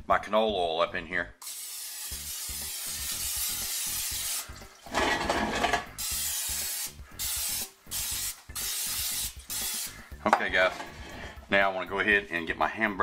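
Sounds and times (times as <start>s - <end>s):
cooking spray hissing: 1.4s - 5.0s, 5.8s - 10.2s.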